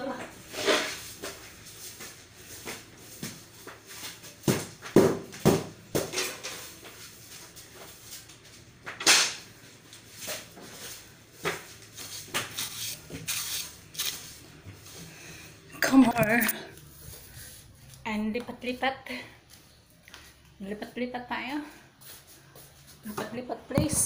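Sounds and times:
broom sweeping a floor: 0:00.4 - 0:04.6, 0:06.0 - 0:08.6, 0:09.6 - 0:15.1, 0:16.8 - 0:18.0, 0:22.0 - 0:23.4.

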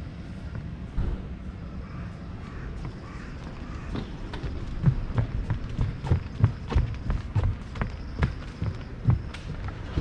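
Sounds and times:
footsteps on wooden boardwalk: 0:02.5 - 0:10.0.

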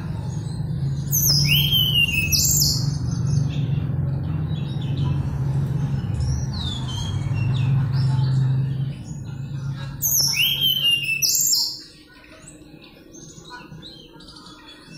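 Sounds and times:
steady low hum: 0:00.0 - 0:10.8
bird whistled song: 0:01.0 - 0:03.8, 0:10.0 - 0:12.0.

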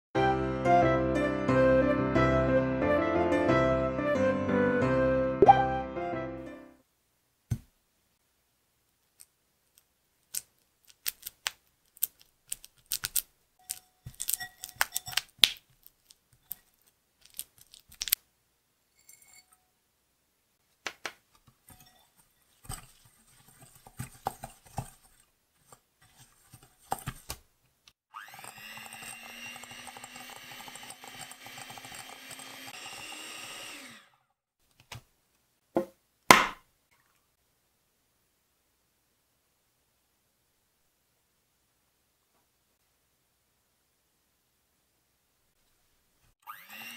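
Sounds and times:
electric hand mixer running: 0:28.1 - 0:34.2, 0:46.4 - 0:46.9.

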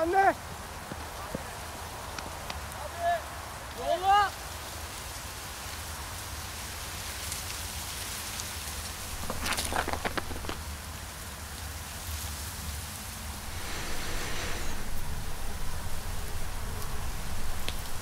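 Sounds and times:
wind through dry leaves: 0:00.0 - 0:18.0
sharp clicks and rustles: 0:09.0 - 0:10.7.

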